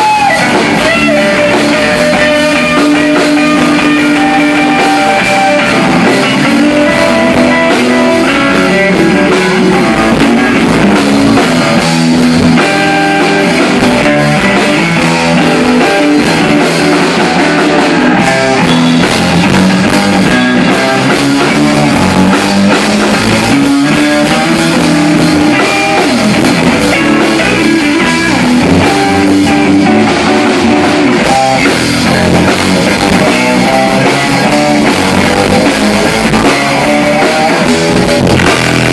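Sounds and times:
bass guitar: 0.0 - 38.9
drum kit: 0.0 - 38.9
electric guitar: 0.0 - 38.9.

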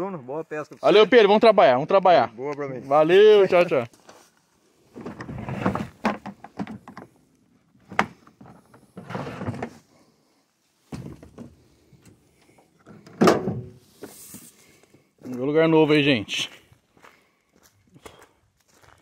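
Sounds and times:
loud thunk: 13.2 - 13.7.

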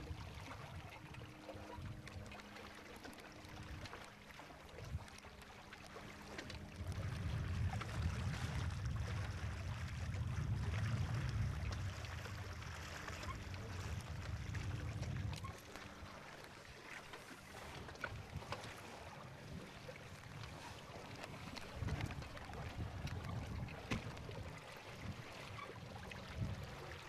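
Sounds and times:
wind buffeting microphone: 6.6 - 16.1, 17.8 - 27.0.

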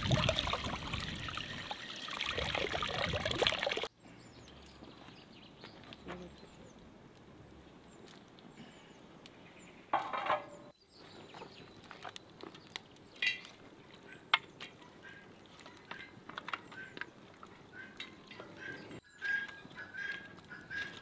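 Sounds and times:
poultry calling: 15.0 - 21.0.

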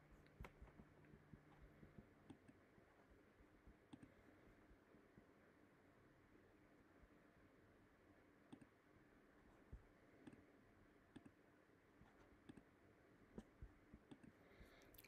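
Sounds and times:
faint computer mouse clicks: 8.5 - 8.8, 11.1 - 11.4.

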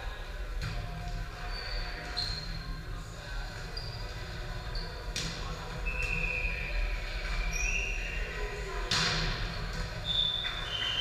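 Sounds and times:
ball striking in a hall: 0.0 - 2.8, 5.0 - 11.0
sneakers squeaking on gym floor: 1.4 - 2.8, 3.7 - 8.4, 9.9 - 11.0.

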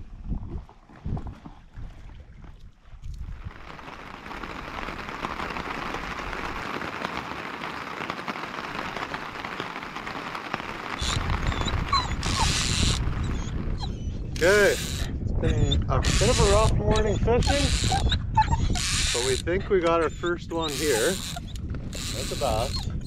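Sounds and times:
steady rain falling: 3.5 - 13.2.

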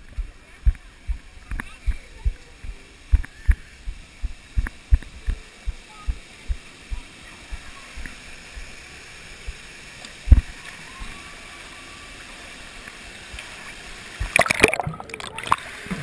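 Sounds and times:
water rushing and churning: 13.9 - 16.0.

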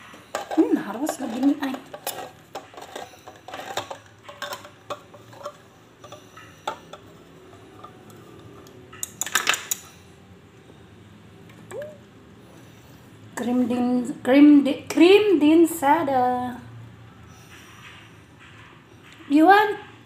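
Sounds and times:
can opener clicking and scraping: 0.0 - 9.9
metal clatter: 0.0 - 9.9.

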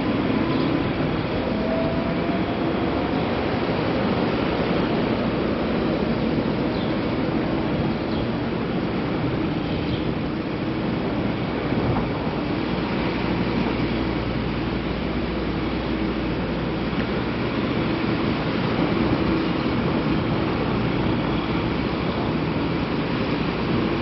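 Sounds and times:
city traffic noise: 0.0 - 24.0.

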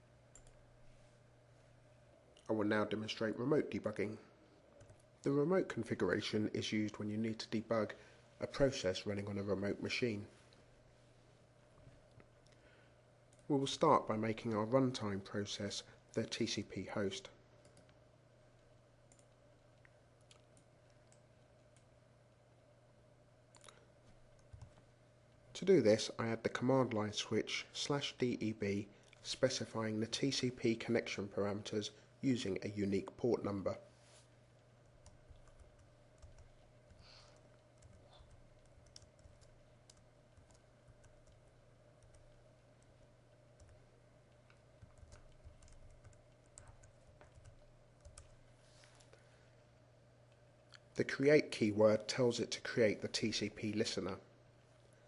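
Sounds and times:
faint low hum: 0.0 - 55.0
faint keyboard typing: 0.2 - 0.7, 4.7 - 5.2, 13.3 - 15.0, 17.2 - 22.7, 23.5 - 25.4, 34.6 - 49.2
computer mouse clicks: 0.3 - 0.6, 19.1 - 21.9, 23.5 - 24.8, 35.0 - 43.0, 44.4 - 48.4.

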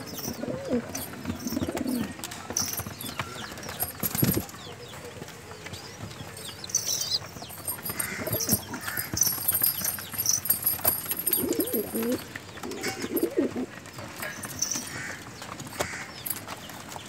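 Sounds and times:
pigeons cooing: 0.0 - 4.4, 7.7 - 16.4.

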